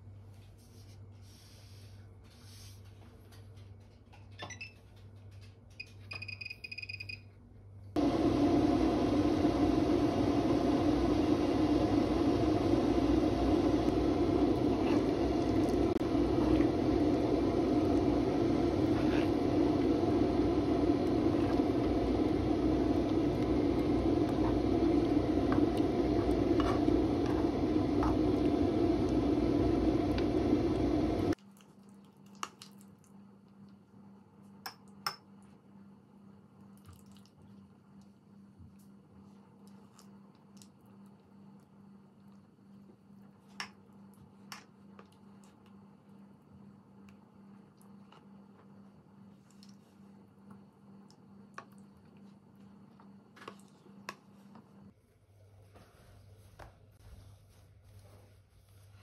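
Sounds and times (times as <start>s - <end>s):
jam bubbling in a pot: 8.0s - 33.1s.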